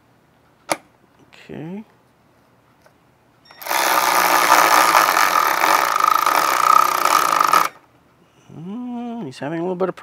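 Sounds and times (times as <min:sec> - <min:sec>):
cordless ratchet motor whining: 0:03.5 - 0:07.8.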